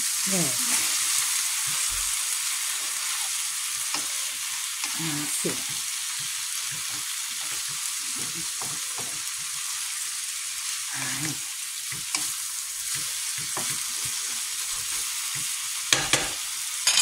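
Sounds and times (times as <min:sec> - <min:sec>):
vegetables sizzling in frying pan: 0:00.0 - 0:17.0
utensil tapping and scraping pan: 0:15.9 - 0:17.0.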